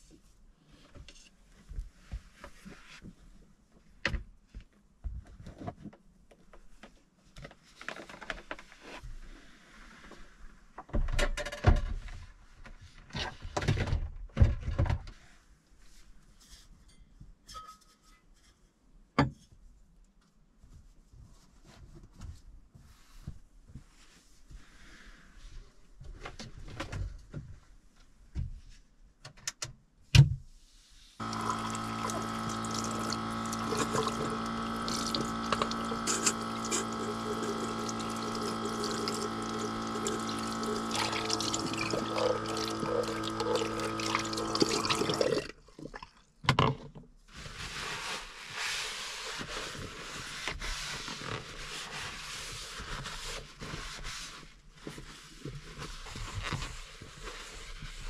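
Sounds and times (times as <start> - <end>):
small water pump running: 31.2 - 45.6.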